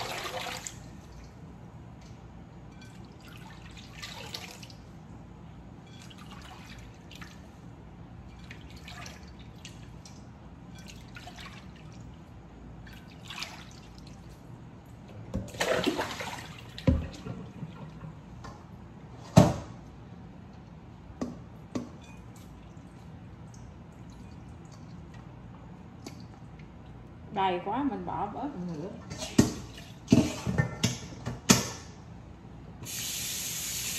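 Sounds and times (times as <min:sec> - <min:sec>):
water sloshing and splashing: 0:00.0 - 0:01.4, 0:02.7 - 0:05.1, 0:05.8 - 0:14.7, 0:15.3 - 0:18.5, 0:22.0 - 0:27.1, 0:28.6 - 0:30.6.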